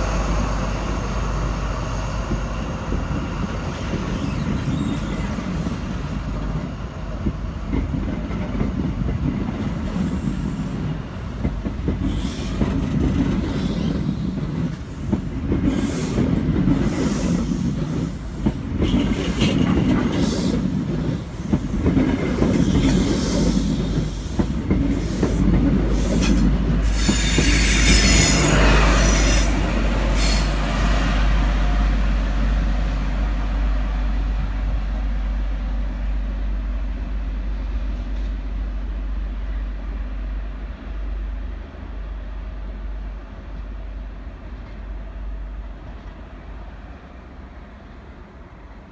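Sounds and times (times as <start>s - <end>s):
squealing train wheels: 0.0s - 6.2s, 11.9s - 31.8s
train coaches rumbling past: 0.0s - 48.9s.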